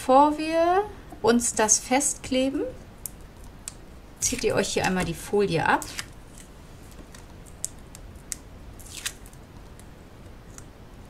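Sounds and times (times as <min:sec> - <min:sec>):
paper and tape crackling: 0:03.4 - 0:10.7.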